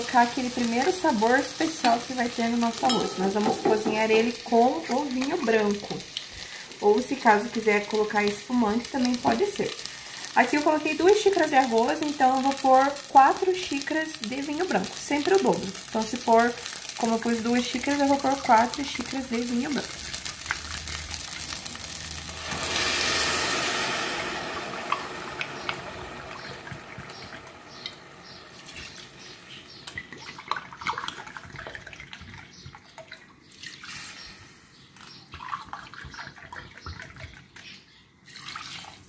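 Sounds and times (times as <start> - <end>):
wine pouring into hot pot: 1.2 - 7.1, 17.9 - 29.2.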